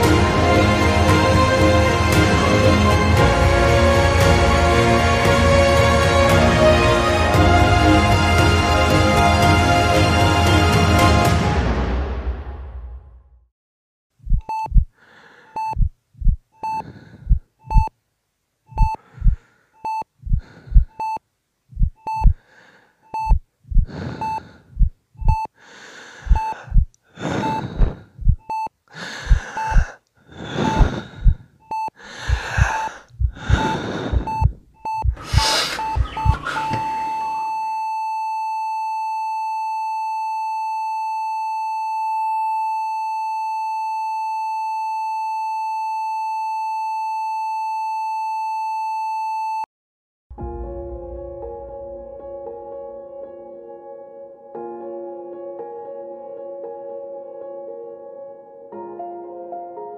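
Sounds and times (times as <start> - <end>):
heartbeat thumps: 14.2 - 15.0, 15.6 - 17.9, 18.7 - 22.4, 23.2 - 25.5, 26.2 - 37.4
heart monitor beeping: 14.2 - 17.9, 18.7 - 22.4, 23.1 - 25.5, 26.2 - 49.7
gasping breaths: 15.0 - 15.7, 16.7 - 17.4, 19.0 - 21.0, 22.3 - 23.1, 23.7 - 24.9, 25.5 - 37.4.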